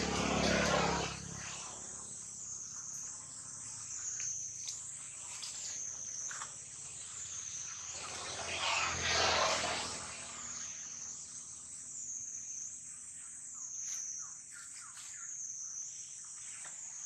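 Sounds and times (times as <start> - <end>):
insect chorus: 0.0 - 17.0
rush of noise: 7.9 - 10.7.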